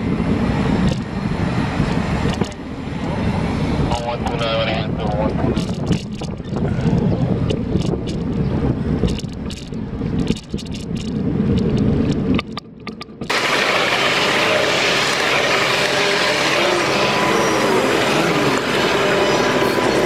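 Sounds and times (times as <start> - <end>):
wind rumble on microphone: 0.0 - 14.3
bicycle rattling clicks: 0.8 - 1.1, 1.9 - 2.6, 5.5 - 13.3
steady loud hiss: 13.3 - 20.0.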